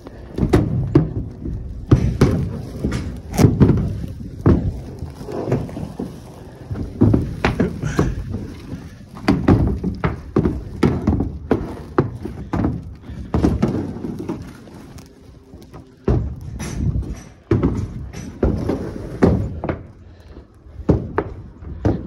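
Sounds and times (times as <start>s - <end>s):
tarp knocks and thuds: 0.3s - 15.1s.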